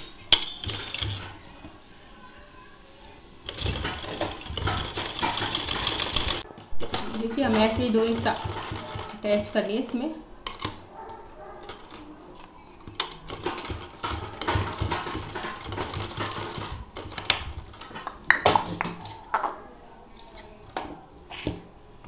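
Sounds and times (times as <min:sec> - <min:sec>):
sewing machine stitching: 0:00.6 - 0:01.4, 0:03.4 - 0:10.0, 0:13.0 - 0:17.8.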